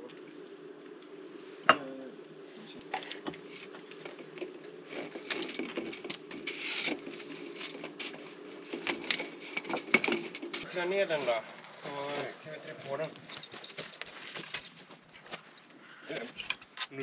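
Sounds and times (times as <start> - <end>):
faint steady hum: 0.0 - 17.0
plastic conduit rustling and scraping: 2.8 - 12.3.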